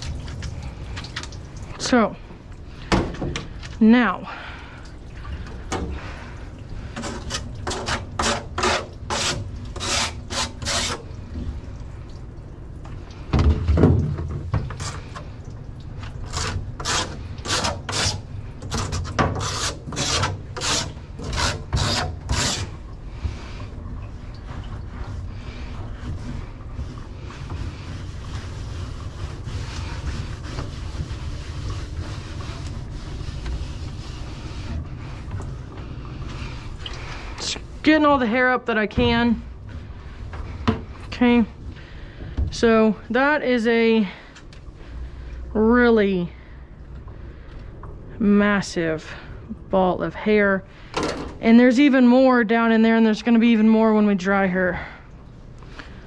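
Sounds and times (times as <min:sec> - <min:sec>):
hands scraping in wet tub: 0:06.8 - 0:11.2, 0:16.0 - 0:39.4.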